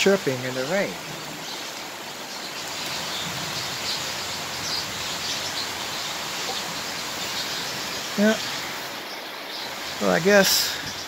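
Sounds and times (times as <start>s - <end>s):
birds chirping faintly: 0.0s - 11.0s
steady rain falling: 0.0s - 11.0s.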